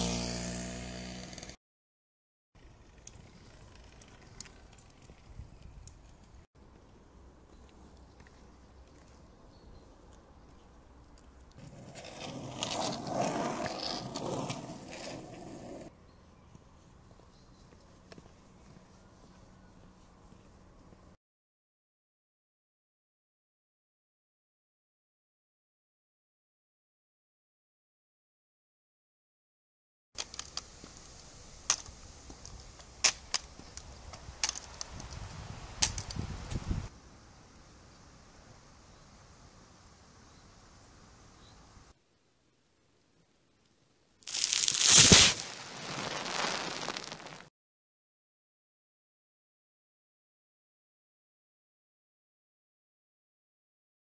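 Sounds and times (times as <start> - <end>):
faint background noise: 2.6 - 21.2, 30.2 - 47.4
skateboard wheels rolling on asphalt: 2.6 - 21.2, 30.2 - 42.0, 44.2 - 47.5.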